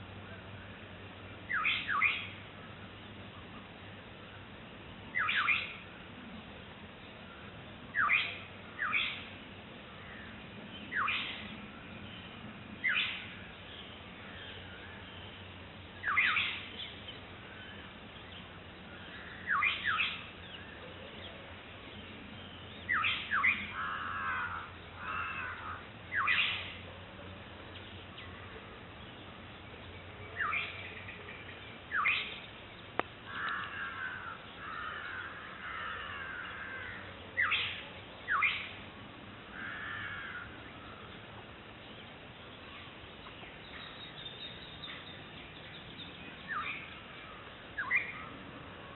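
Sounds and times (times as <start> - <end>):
bird soft wavering calls: 1.5 - 2.4, 5.1 - 5.8, 10.0 - 21.5, 22.4 - 26.9, 29.6 - 38.8, 41.9 - 48.4
bird harsh falling calls: 22.8 - 26.8, 33.2 - 38.8, 39.5 - 41.3.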